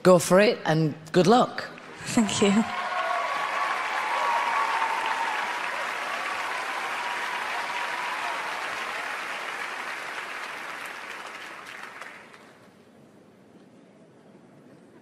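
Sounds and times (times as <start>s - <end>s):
large audience applauding: 1.8s - 12.7s.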